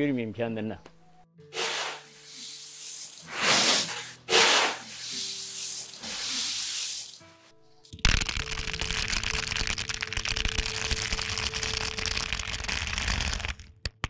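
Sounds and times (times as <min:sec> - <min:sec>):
plastic sack rustling: 0:01.6 - 0:07.3.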